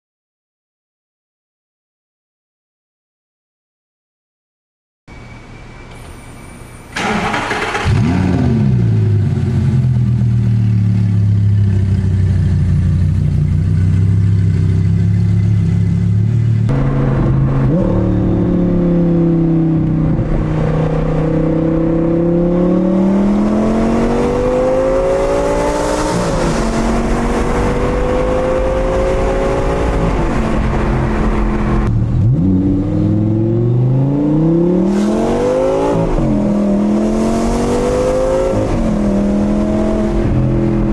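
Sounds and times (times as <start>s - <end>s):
car engine starting and idling: 5.1s - 33.5s
car engine accelerating: 6.9s - 40.9s.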